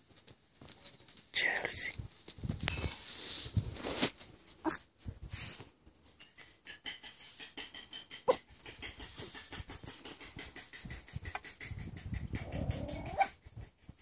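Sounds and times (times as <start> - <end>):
dog panting: 6.2 - 14.0
dog whining: 12.4 - 13.4.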